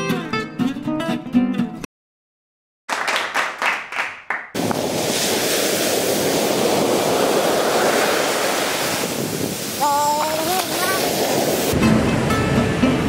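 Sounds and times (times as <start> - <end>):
thumps and gusts on microphone: 4.6 - 11.8
ocean waves breaking: 4.6 - 13.0.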